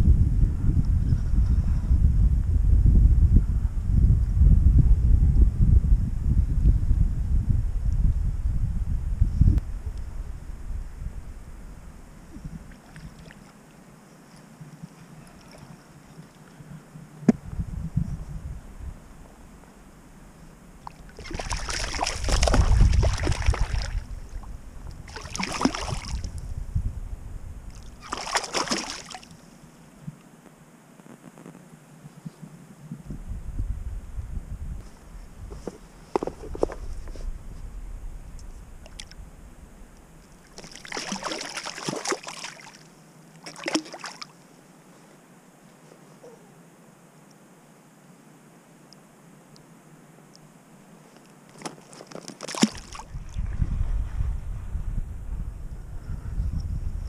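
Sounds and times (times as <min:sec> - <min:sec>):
low rumble: 0:00.0 - 0:12.7, 0:53.1 - 0:57.0
fish splashing in shallow water: 0:20.8 - 0:26.4, 0:27.7 - 0:29.4, 0:40.4 - 0:44.4, 0:51.5 - 0:54.0.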